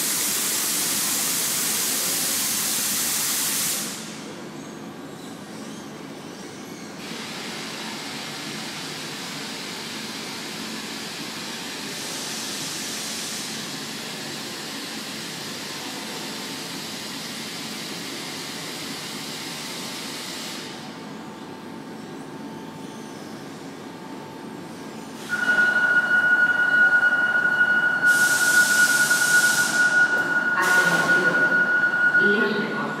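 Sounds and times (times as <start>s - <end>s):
air hissing: 28.1s - 31.3s.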